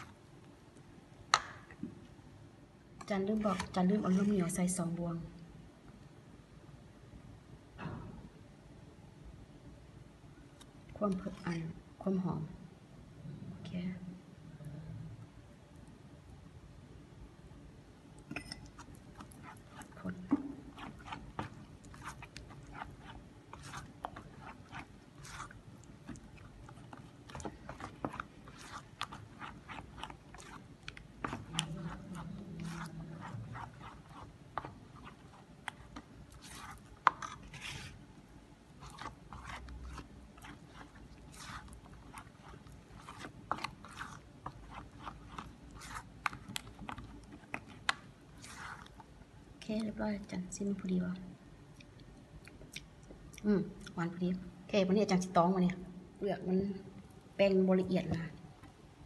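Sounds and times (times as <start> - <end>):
batter squelching by hand: 3.1 - 4.7, 18.4 - 50.6.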